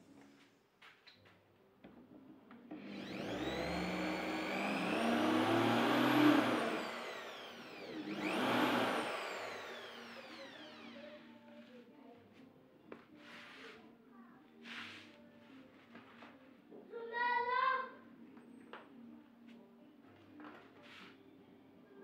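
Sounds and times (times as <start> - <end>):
cordless drill whining into wood: 2.8 - 11.2.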